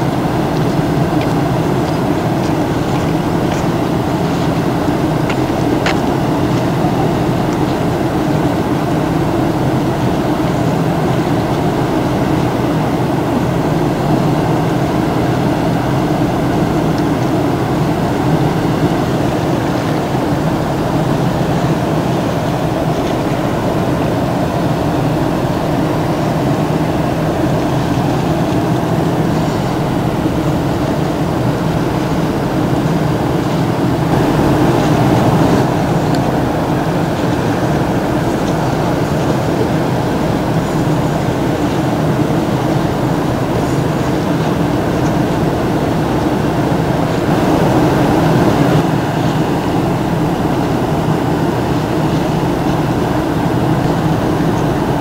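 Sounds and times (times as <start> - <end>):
low mechanical rumble: 0.0 - 55.0.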